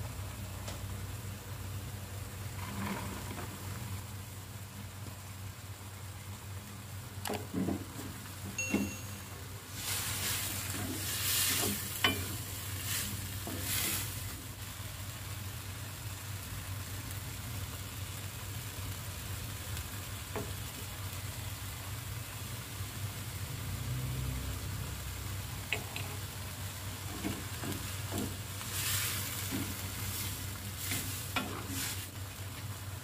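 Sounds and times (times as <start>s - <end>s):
vegetables sizzling in a wok: 0.0s - 33.0s
spatula scraping a pan: 2.6s - 3.6s, 9.8s - 14.2s, 27.1s - 32.1s.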